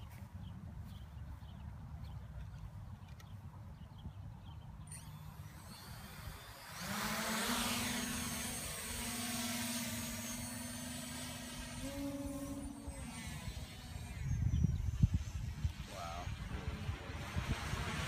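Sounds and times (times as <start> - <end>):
drone motors buzzing: 4.8 - 18.0
wind rumbling on microphone: 11.6 - 18.0.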